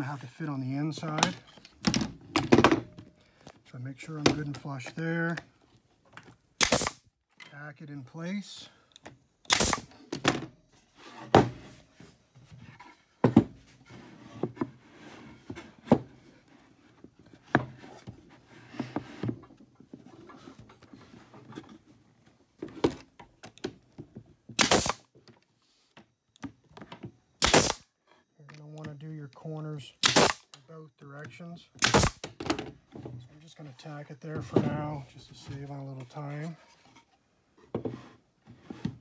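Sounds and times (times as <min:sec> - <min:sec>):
nail gun shots: 0:06.6 - 0:07.0, 0:09.5 - 0:09.9, 0:24.6 - 0:25.0, 0:27.4 - 0:27.8, 0:30.0 - 0:30.6, 0:31.8 - 0:32.4.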